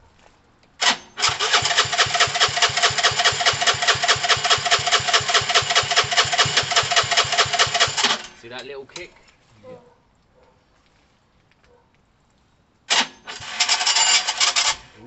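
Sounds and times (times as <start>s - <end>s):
motorcycle engine idling: 1.3s - 8.4s.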